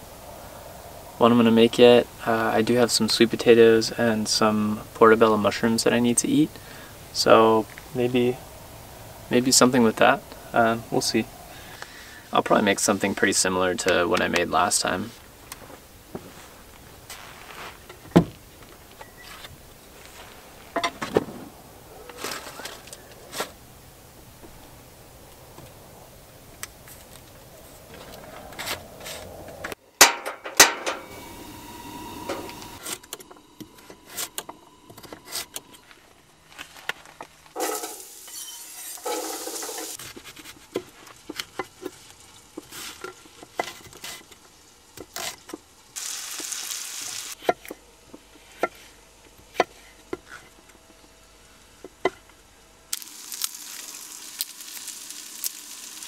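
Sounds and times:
food rustling: 35.8s - 47.4s, 53.0s - 56.0s
food frying in a pan: 37.6s - 47.4s, 52.9s - 56.0s.

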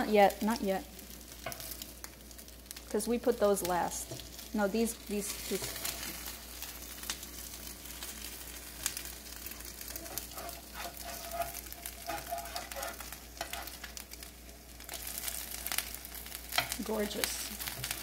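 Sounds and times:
bread sizzling in skillet: 0.0s - 18.0s
metal spatula turning food: 1.0s - 2.8s, 3.8s - 18.0s.

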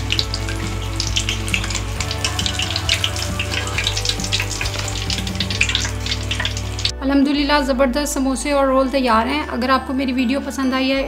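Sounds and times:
hot oil sizzling and popping: 0.0s - 7.0s.

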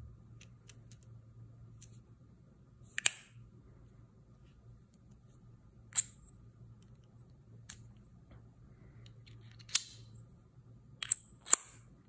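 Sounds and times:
screwdriver parts clicking: 11.0s - 11.8s.

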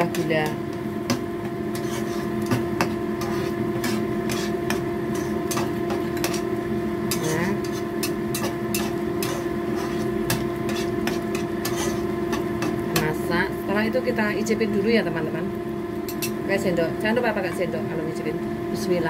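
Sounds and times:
steady low hum: 0.0s - 19.0s
plastic spatula scraping frying pan: 1.7s - 6.5s, 7.2s - 12.8s.

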